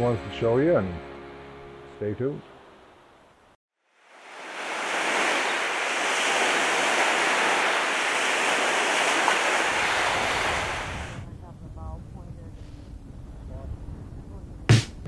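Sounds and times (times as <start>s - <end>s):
waves washing against rocks: 4.2s - 11.2s.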